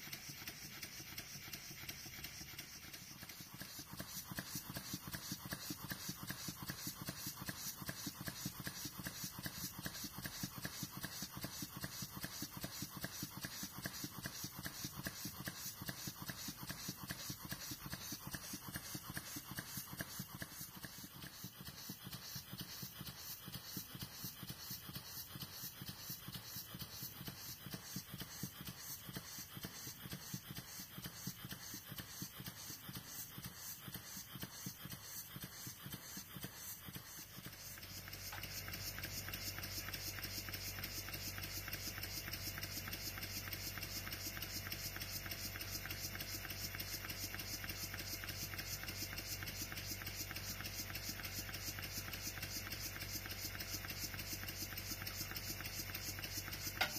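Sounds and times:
model steam engine puffing and clicking: 0.0 - 56.9
steady low hum: 0.0 - 56.9.

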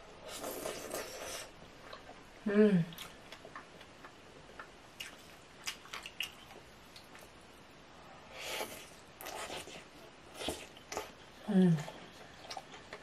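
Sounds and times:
slurping noodles: 0.2 - 1.5
wet chewing: 2.9 - 7.4, 8.6 - 13.0.

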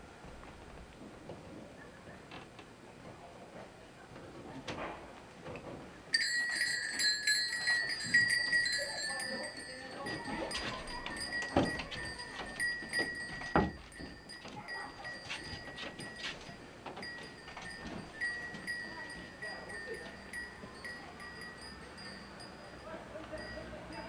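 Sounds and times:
small metal bells jingling: 6.1 - 24.0.

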